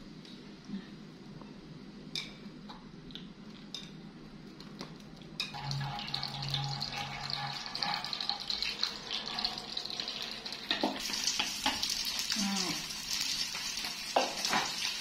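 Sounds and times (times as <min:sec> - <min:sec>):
low hum: 0:05.5 - 0:10.6
corn sizzling in a pan: 0:05.5 - 0:15.0.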